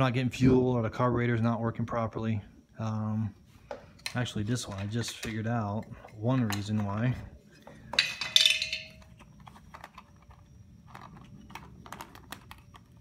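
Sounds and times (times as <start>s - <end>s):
metal clatter and clinks: 7.9s - 10.0s.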